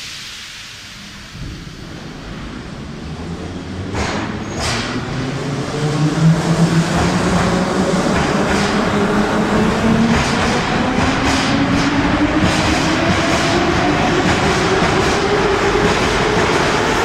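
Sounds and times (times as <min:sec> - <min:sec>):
train wheels clacking over rail joints: 0:03.8 - 0:05.4, 0:06.5 - 0:17.0.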